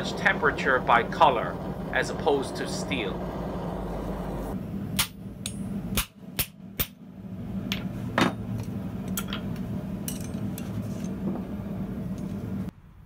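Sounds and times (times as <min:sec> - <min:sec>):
steady low hum: 0:00.0 - 0:13.0
hammer striking on anvil: 0:05.0 - 0:07.0.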